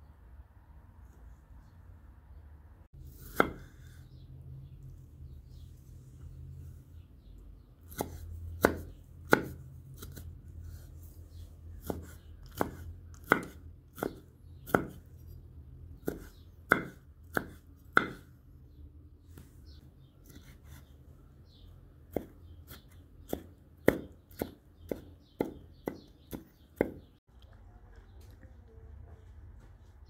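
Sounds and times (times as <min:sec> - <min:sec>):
knife chopping on wooden board: 0:03.2 - 0:03.7, 0:07.9 - 0:10.2, 0:11.8 - 0:15.1, 0:16.0 - 0:18.3, 0:22.1 - 0:27.1.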